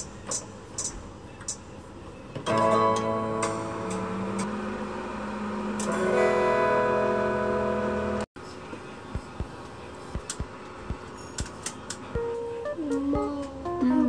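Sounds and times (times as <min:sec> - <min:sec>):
strummed guitar chords: 0:02.5 - 0:08.3, 0:12.1 - 0:14.0.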